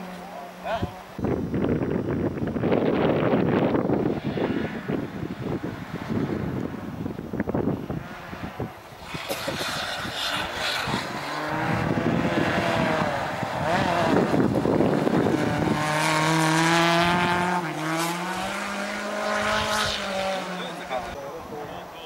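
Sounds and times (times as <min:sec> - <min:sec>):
rally car engine at high revs: 0:02.6 - 0:21.2
tyres in snow: 0:08.0 - 0:21.1.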